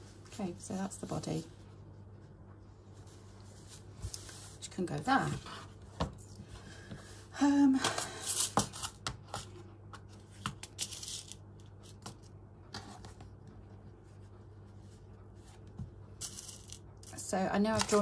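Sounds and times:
fabric and paper rustling: 16.6 - 18.0.

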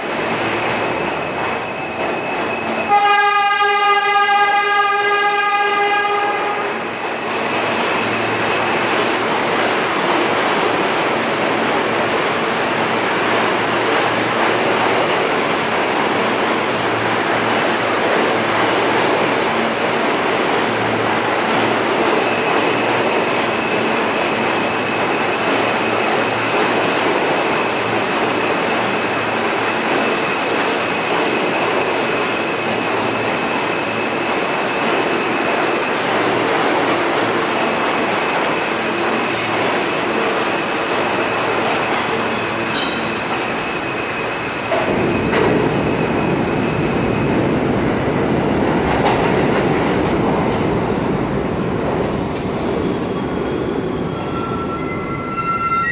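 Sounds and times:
deep train rumble close by: 0.0 - 55.9
subway train rumble and rattle: 0.0 - 55.9
high wheel squeal: 38.6 - 46.9, 51.7 - 55.9.

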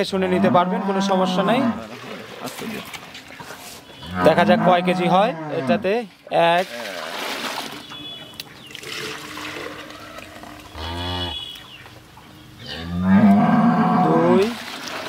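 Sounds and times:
cows mooing: 0.2 - 2.1, 4.0 - 5.9, 8.9 - 11.6, 12.6 - 14.5.

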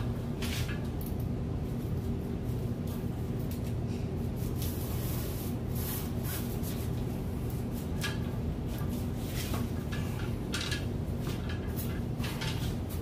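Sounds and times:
steady low hum: 0.0 - 13.0
sail fabric rustling and scraping: 4.2 - 13.0.

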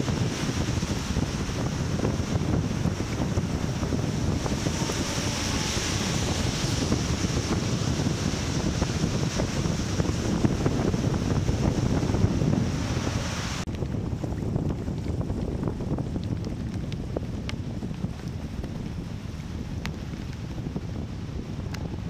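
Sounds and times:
wind buffeting microphone: 0.0 - 22.0.

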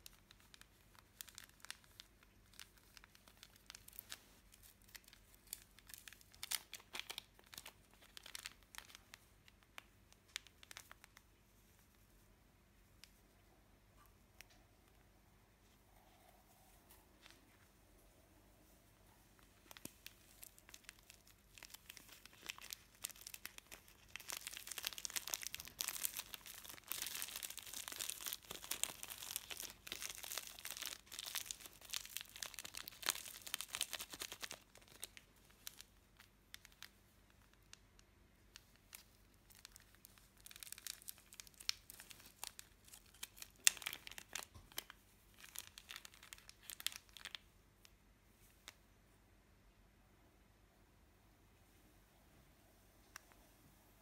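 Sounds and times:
plastic packets crinkling: 0.0 - 11.3, 19.4 - 37.8, 38.5 - 47.5.

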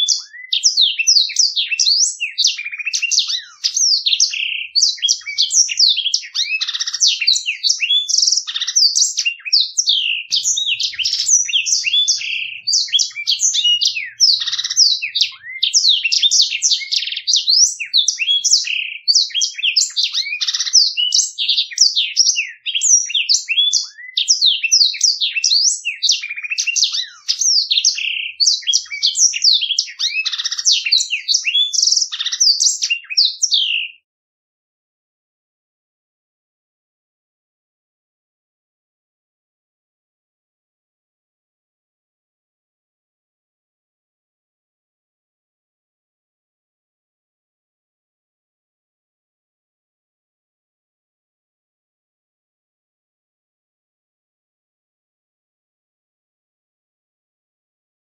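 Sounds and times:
canary singing: 0.0 - 34.0.

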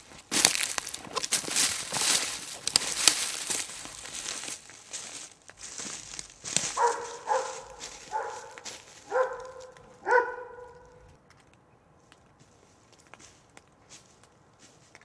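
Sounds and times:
footsteps on a trail: 0.0 - 11.2, 12.0 - 15.0
dog barking: 6.6 - 11.1.

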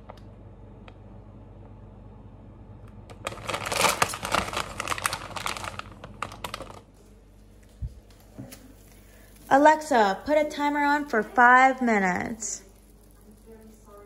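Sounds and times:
plastic packet crinkling: 3.1 - 11.3, 12.6 - 14.0.

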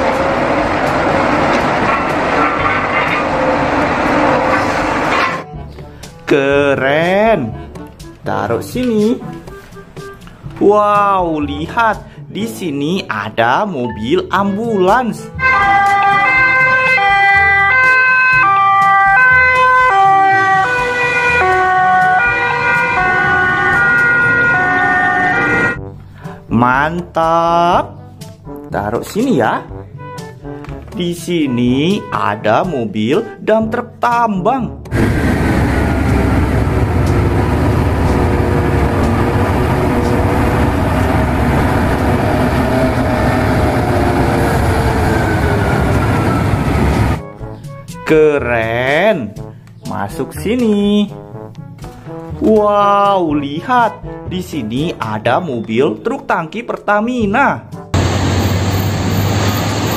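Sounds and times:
two-tone ambulance siren: 0.0 - 5.4, 15.2 - 26.0, 34.9 - 47.6, 58.0 - 59.9
engine whine: 0.0 - 6.2, 15.4 - 25.8, 34.9 - 47.3, 58.0 - 59.9
haul truck diesel engines rumbling: 0.0 - 10.6, 14.5 - 26.5, 34.9 - 48.0, 58.0 - 59.9.

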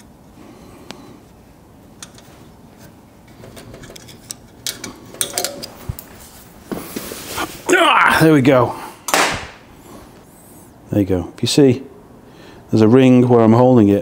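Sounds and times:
metallic clicks and rattles: 3.3 - 5.8.

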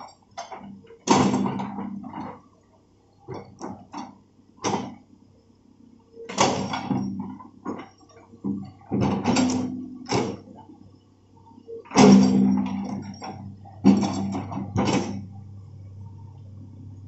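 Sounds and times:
faint low engine hum: 0.0 - 17.0
excavator bucket clanking and knocking: 6.3 - 10.6, 11.9 - 15.4.

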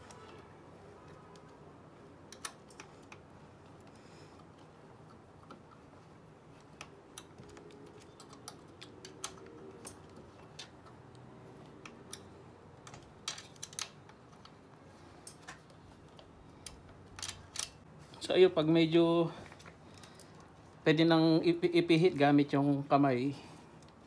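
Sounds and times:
allen key metallic clicks: 2.3 - 3.3, 6.7 - 14.6, 15.2 - 17.9.

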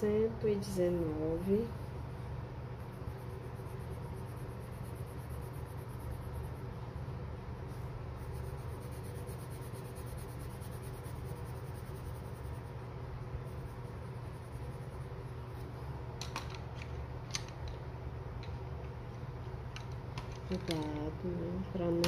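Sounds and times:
steady low hum: 0.0 - 22.0
pencil scratching on paper: 2.8 - 6.8, 7.7 - 12.8, 13.4 - 15.7.

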